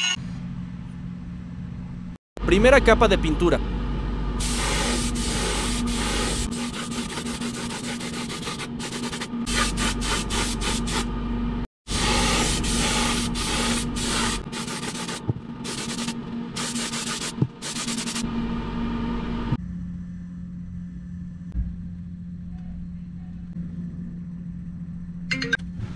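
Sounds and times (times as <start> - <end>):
steady low hum: 0.2 - 25.9
airbrush spraying hiss: 4.4 - 11.1, 11.9 - 18.2.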